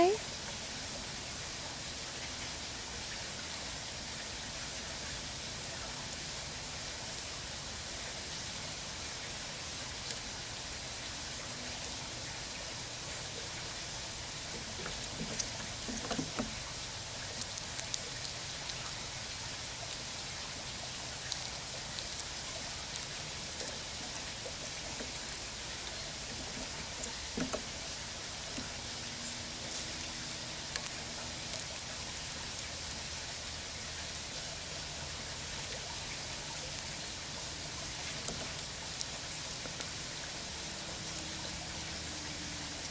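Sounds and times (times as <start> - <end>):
steady hiss: 0.0 - 42.9
squirrel cracking seeds: 5.7 - 42.9.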